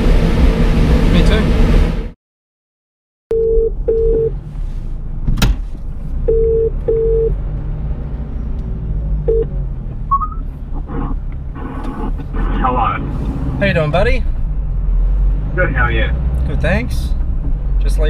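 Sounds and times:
truck driving drone: 0:00.0 - 0:02.2, 0:06.0 - 0:18.0
telephone ringback tone: 0:03.3 - 0:04.3.

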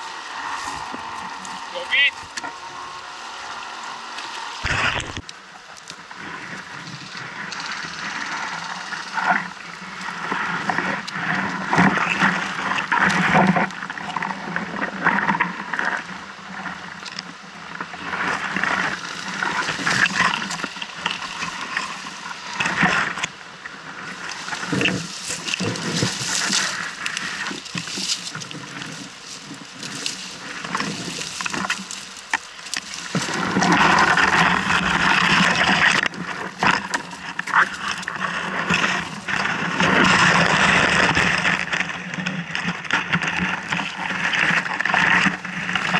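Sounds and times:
leaves and stems rustling: 0:00.0 - 0:45.9.

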